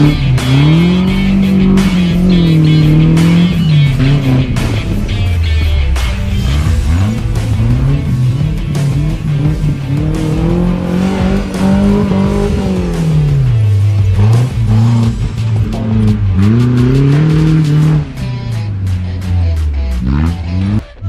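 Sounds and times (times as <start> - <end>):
background music: 0.0 - 21.0
off-road vehicle engine revving: 0.0 - 21.0.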